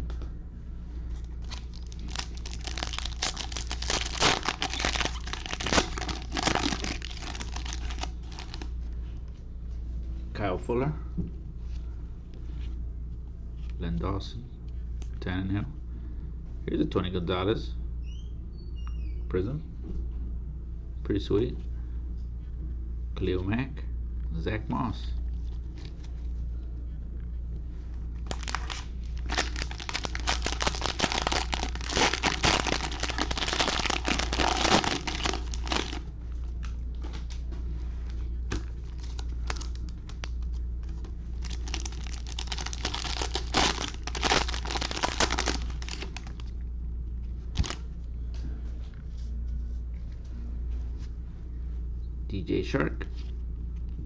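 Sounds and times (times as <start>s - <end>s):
cellophane crackling: 1.4s - 8.7s, 28.2s - 36.0s, 38.5s - 40.6s, 41.4s - 46.5s, 47.5s - 47.8s.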